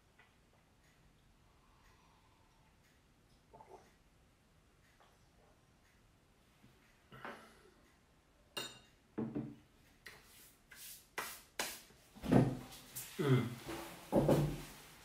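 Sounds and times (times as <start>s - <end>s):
glass clinking on table: 8.6s - 9.3s
hands rubbing together: 10.1s - 11.9s.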